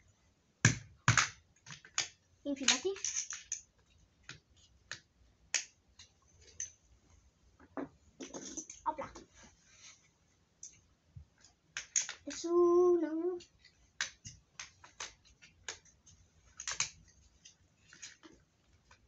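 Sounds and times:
metal parts and tools clicking: 1.8 - 3.7, 6.0 - 6.8, 8.2 - 9.0.

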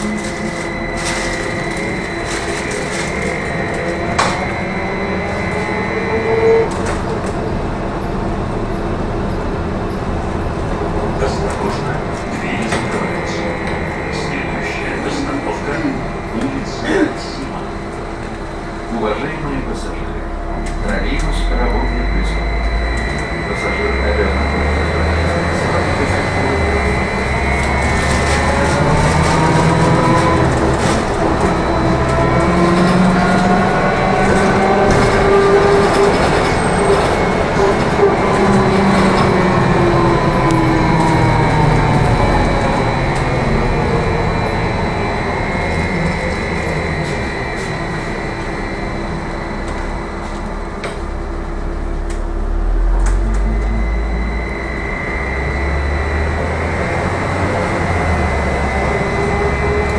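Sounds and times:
brief louder tone: 0.0 - 7.6, 18.6 - 33.3, 38.0 - 59.9
high electric whine: 0.0 - 59.9
road rumble: 0.0 - 59.9.

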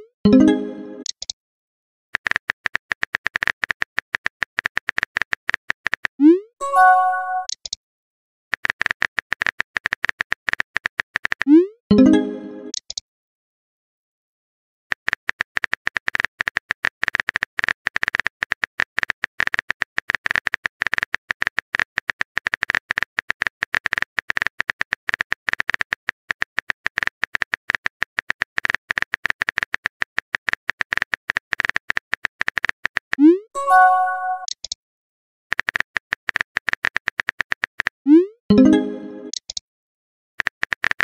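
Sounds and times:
phone keyboard typing clicks: 2.2 - 6.2, 8.5 - 11.5, 14.9 - 33.2, 34.2 - 34.8, 35.5 - 38.0, 38.6 - 39.6, 40.4 - 41.0.

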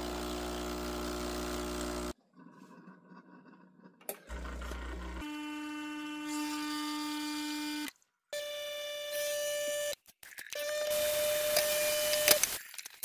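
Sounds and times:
espresso machine pump humming: 0.0 - 2.2.

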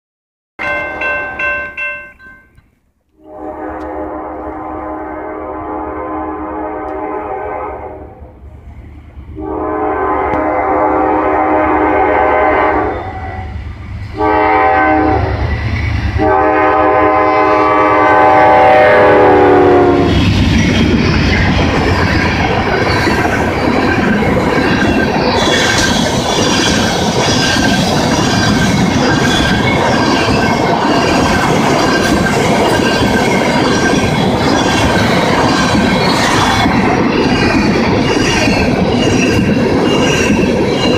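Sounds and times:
locomotive horn blasts: 3.2 - 8.2, 9.4 - 13.5, 14.1 - 15.4, 16.2 - 20.2
train wheels clattering on rails: 20.0 - 40.9.

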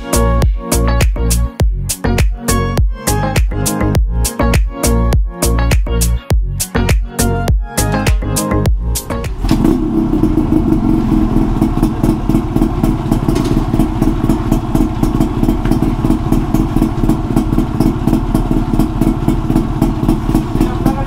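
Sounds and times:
motorcycle engine running: 8.7 - 21.0.

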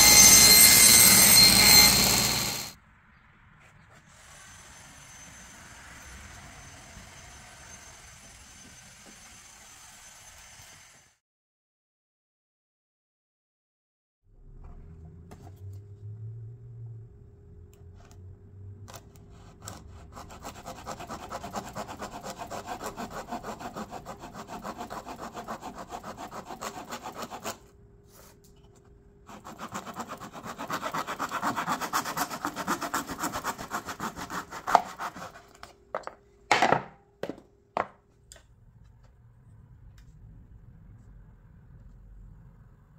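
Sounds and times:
saw cutting cork: 0.0 - 2.7, 18.9 - 28.3, 29.3 - 35.7.

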